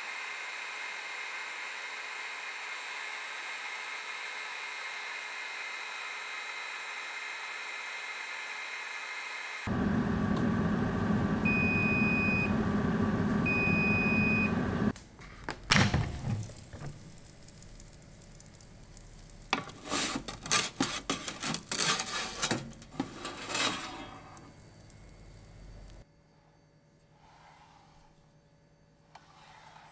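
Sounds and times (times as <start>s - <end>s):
air fryer fan running: 9.7s - 14.9s
long beeps: 11.4s - 12.5s, 13.4s - 14.6s
wooden spatula scraping metal tray: 19.6s - 24.5s, 29.2s - 29.9s.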